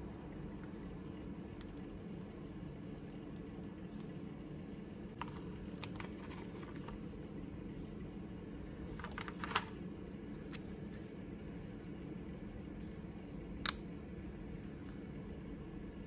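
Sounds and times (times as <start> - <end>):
steady low hum: 0.0 - 16.0
light handling clicks: 13.6 - 13.9.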